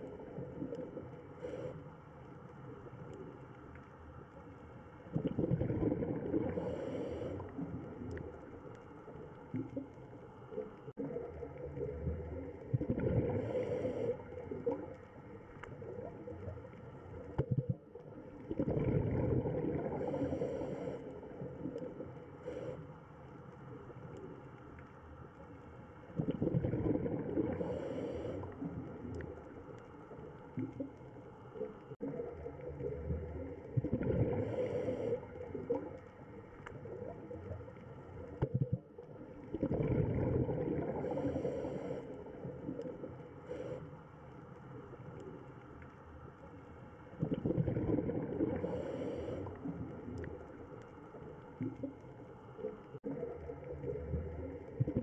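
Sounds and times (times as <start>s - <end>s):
diver's bubbling exhale underwater: 5.1s - 8.3s, 11.0s - 14.9s, 17.3s - 22.7s, 26.2s - 29.3s, 32.0s - 36.0s, 36.8s - 43.7s, 47.2s - 50.6s, 53.0s - 55.0s.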